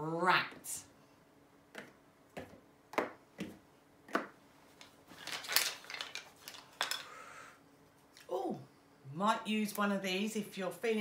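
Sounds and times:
clatter and rustling: 4.8s - 7.0s.

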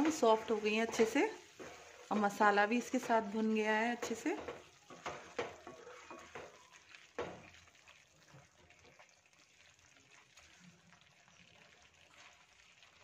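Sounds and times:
wooden spatula scraping pan: 0.0s - 7.6s
food sizzling and bubbling: 0.0s - 13.0s.

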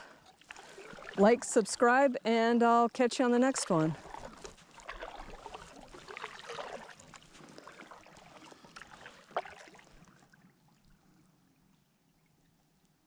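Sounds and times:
kayak paddle splashing: 0.0s - 2.1s, 3.2s - 10.9s
water dripping off paddle: 0.2s - 1.8s, 3.5s - 10.3s.

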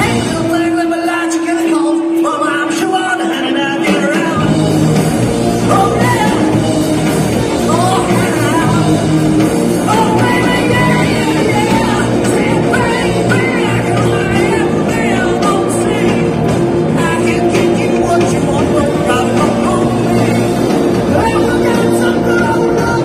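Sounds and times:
bass guitar: 0.0s - 23.0s
electric guitars: 0.0s - 23.0s
person singing: 0.0s - 23.0s.

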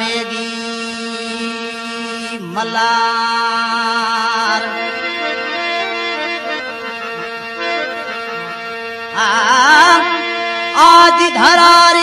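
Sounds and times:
man singing a long wavering note: 0.0s - 5.0s
folk music over a steady drone: 0.0s - 12.0s.

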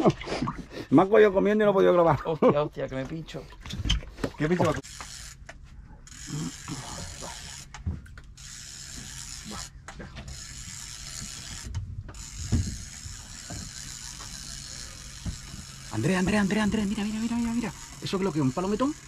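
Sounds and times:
fishing reel whirring: 4.8s - 19.0s.

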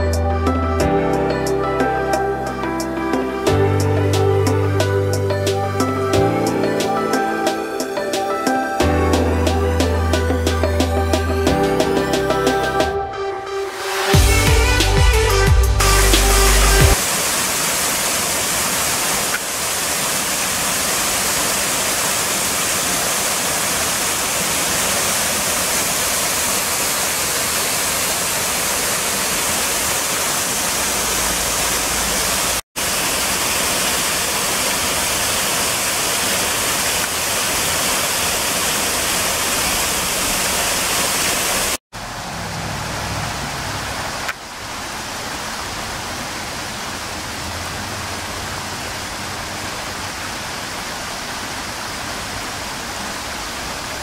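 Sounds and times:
waterfall pouring into pool: 17.0s - 41.8s.

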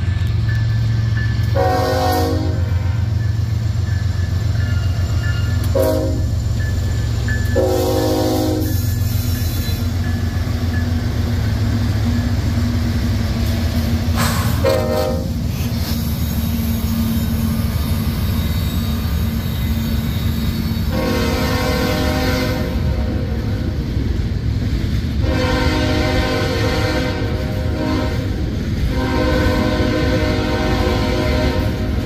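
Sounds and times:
diesel locomotive engines droning: 0.0s - 32.0s
locomotive air horn blasts: 1.5s - 3.2s, 5.6s - 6.4s, 7.6s - 8.9s, 14.2s - 15.4s, 20.9s - 23.4s, 25.2s - 32.0s.

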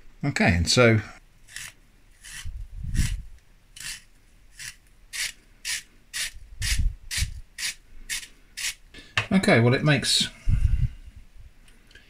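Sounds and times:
slicer blade shaving carrot: 1.4s - 3.2s, 3.8s - 8.8s.

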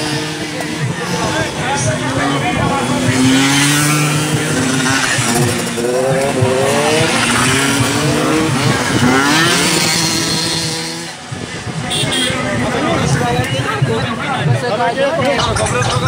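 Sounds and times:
scooter engines revving: 0.0s - 11.9s.

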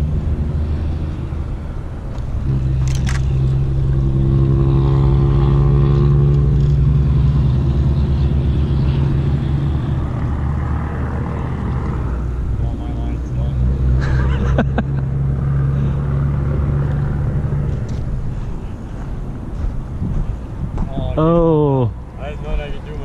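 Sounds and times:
engine drone: 0.0s - 23.0s.

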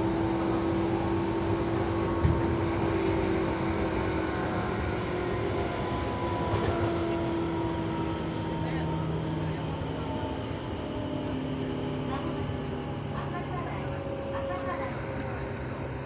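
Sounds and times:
train rumbling on rails: 0.0s - 16.0s.

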